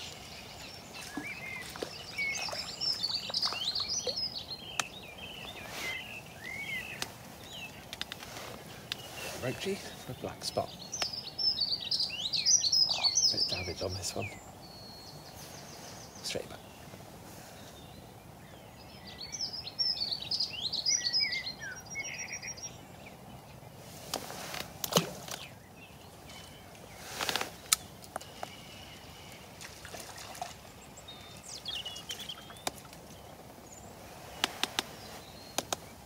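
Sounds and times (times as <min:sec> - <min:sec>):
songbird twittering: 0:00.0 - 0:08.0, 0:08.7 - 0:23.8, 0:24.9 - 0:36.0
faint background hiss: 0:00.0 - 0:36.0
clicks and rustles: 0:07.8 - 0:09.1.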